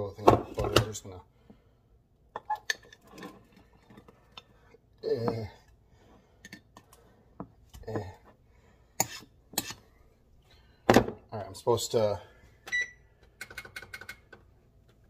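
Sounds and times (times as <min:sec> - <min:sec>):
metal utensil scraping ceramic crock: 0:09.0 - 0:09.8.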